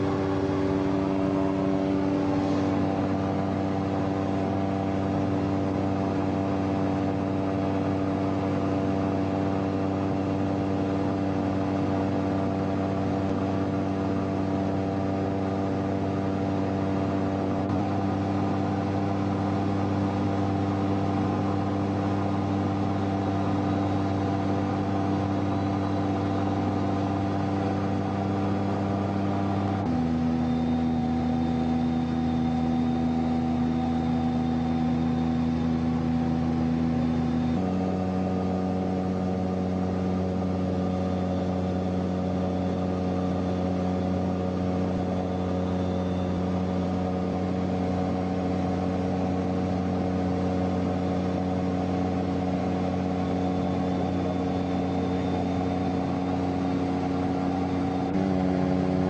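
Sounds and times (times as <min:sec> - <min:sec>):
aircraft engine drone: 0:00.0 - 0:05.5.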